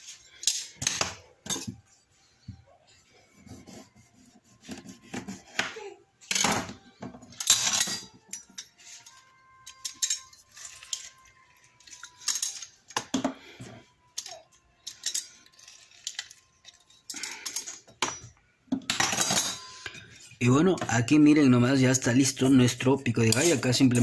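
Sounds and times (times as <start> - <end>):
metal utensils clinking: 0.3 - 1.8, 6.2 - 13.3, 14.1 - 20.9, 23.2 - 24.0.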